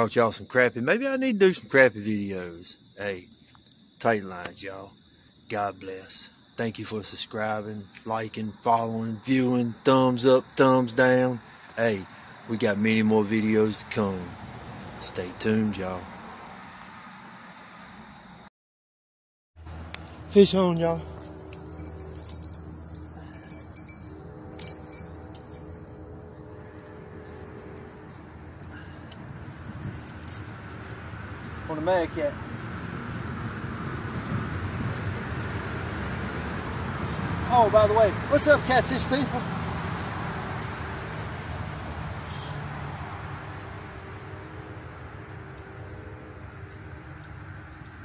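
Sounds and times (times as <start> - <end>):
vehicle engine passing: 19.7 - 46.4
light metallic jingling: 20.2 - 26.1, 26.8 - 29.0
faint steady high tone: 20.3 - 25.9
low hum: 21.0 - 28.8.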